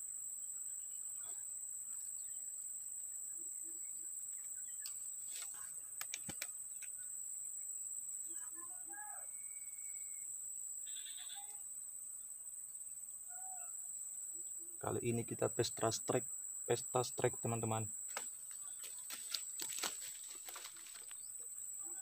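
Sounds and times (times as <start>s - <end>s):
insects droning: 0.0s - 22.0s
faint bird chirps: 0.9s - 11.7s, 13.2s - 15.9s.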